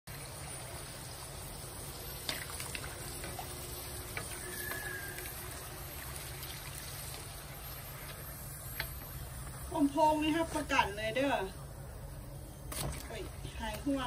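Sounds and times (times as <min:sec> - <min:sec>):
dough sizzling in hot oil: 0:00.1 - 0:11.5.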